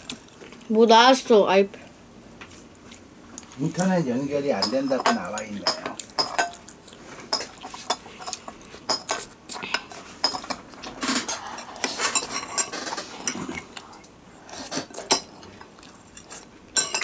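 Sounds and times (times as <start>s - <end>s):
spoon clinking on glass bowl: 4.5s - 6.6s.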